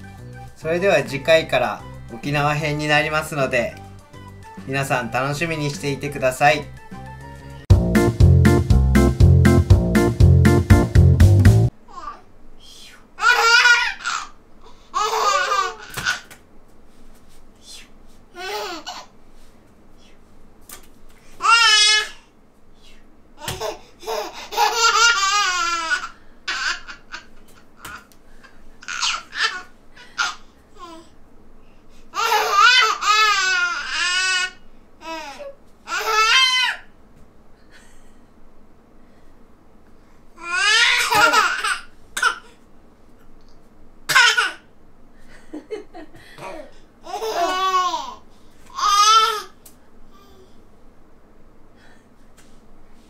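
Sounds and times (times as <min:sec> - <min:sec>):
baby laughing: 0:13.2 - 0:14.4, 0:15.0 - 0:16.3, 0:18.4 - 0:19.1, 0:23.4 - 0:28.1, 0:28.8 - 0:31.0, 0:32.2 - 0:36.8, 0:40.4 - 0:42.4, 0:44.1 - 0:44.6, 0:46.4 - 0:49.5.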